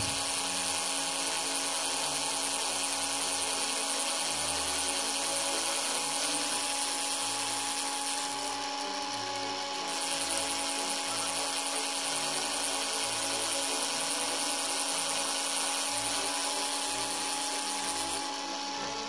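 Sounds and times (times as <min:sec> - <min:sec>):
cordless screwdriver drilling wood: 0:00.0 - 0:19.0.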